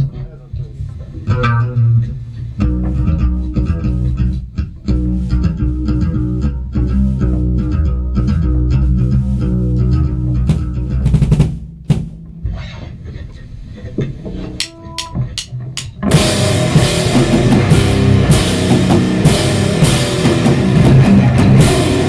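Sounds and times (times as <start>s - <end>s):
heavy metal guitar riff: 14.5s - 22.0s.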